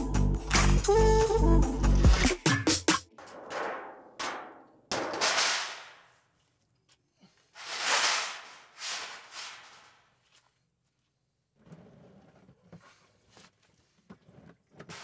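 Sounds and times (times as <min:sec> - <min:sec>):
metal pan scraping on asphalt: 0:07.6 - 0:10.0.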